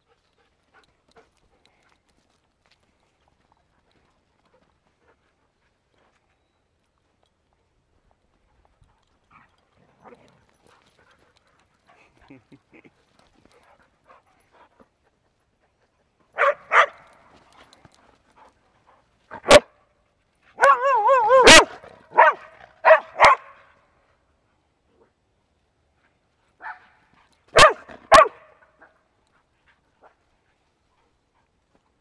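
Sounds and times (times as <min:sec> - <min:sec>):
dogs barking: 0:16.4 - 0:17.0, 0:20.6 - 0:23.6, 0:27.5 - 0:28.5
dog whining yowl: 0:20.6 - 0:21.8.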